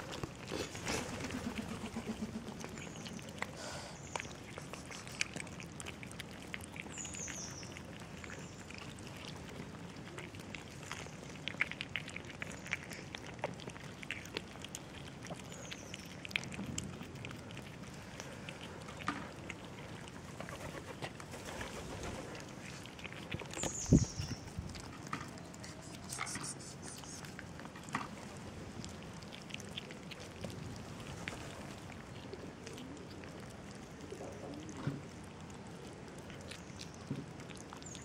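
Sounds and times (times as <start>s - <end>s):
kittens eating: 0.0s - 38.0s
bird chirping: 23.6s - 24.5s.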